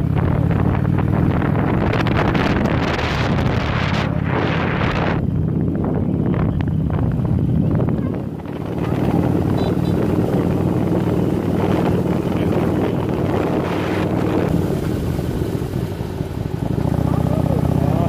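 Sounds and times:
wind on microphone: 0:00.0 - 0:17.0
motorcycle engine running: 0:00.0 - 0:18.0.

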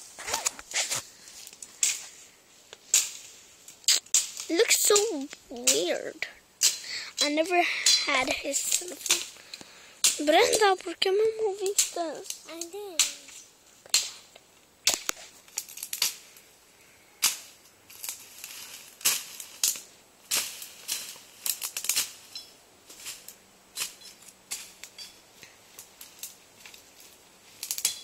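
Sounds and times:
machete chopping brush: 0:02.9 - 0:03.3, 0:03.9 - 0:05.9, 0:13.0 - 0:16.2, 0:17.2 - 0:25.0.

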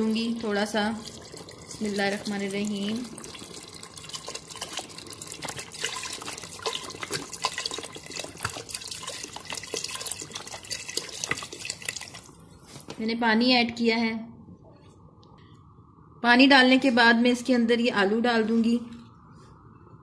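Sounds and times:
water pouring into liquid: 0:00.6 - 0:12.5.

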